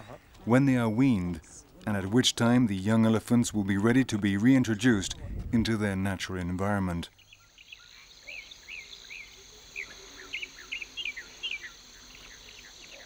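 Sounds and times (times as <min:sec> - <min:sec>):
bird chirping: 0:07.1 - 0:13.0.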